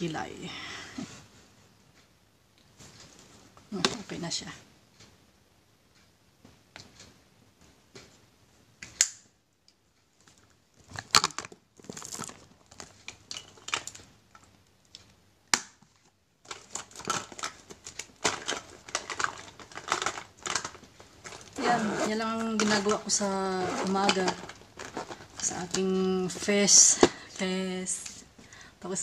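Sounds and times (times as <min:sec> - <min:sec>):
small items clicking and tapping: 0:08.8 - 0:21.6, 0:23.9 - 0:27.4
plastic pouch crinkling: 0:10.8 - 0:14.1, 0:16.4 - 0:23.2, 0:23.8 - 0:26.5.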